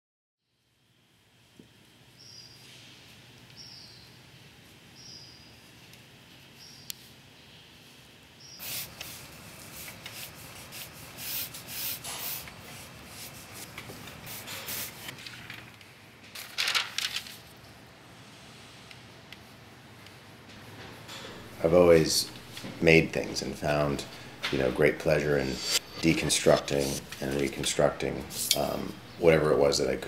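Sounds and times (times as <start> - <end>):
pencil sketching on paper: 8.6 - 13.7, 23.3 - 29.0.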